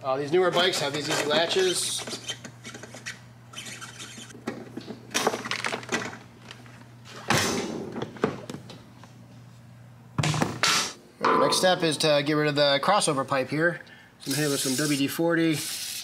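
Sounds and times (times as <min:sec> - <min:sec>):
steady low hum: 0:06.2 - 0:14.3.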